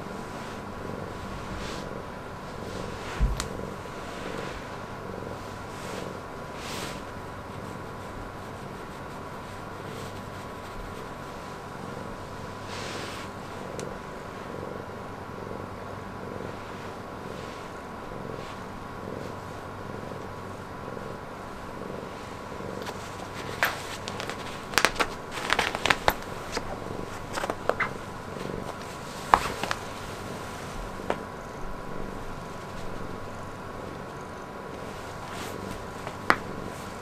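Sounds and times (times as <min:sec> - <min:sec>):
cat purring: 0:00.0 - 0:37.0
paw crackling on nylon jacket: 0:22.8 - 0:30.4.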